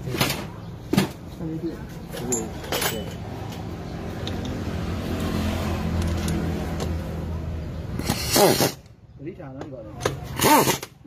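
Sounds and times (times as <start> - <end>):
impact wrench burst: 8.0 - 8.9, 10.3 - 11.0.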